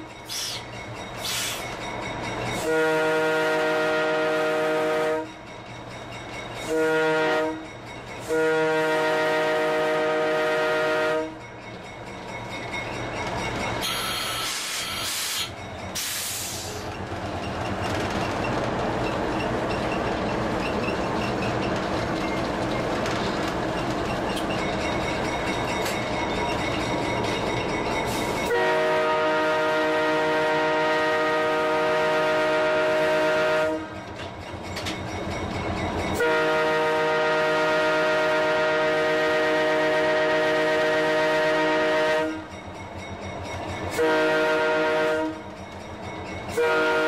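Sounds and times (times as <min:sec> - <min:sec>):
locomotive air horn: 0:02.6 - 0:05.3, 0:06.6 - 0:07.6, 0:08.2 - 0:11.4, 0:13.8 - 0:16.8, 0:28.4 - 0:34.0, 0:36.2 - 0:42.5, 0:43.9 - 0:45.4, 0:46.5 - 0:47.0
wheels clicking over rail joints: 0:15.6 - 0:28.5, 0:34.0 - 0:36.2.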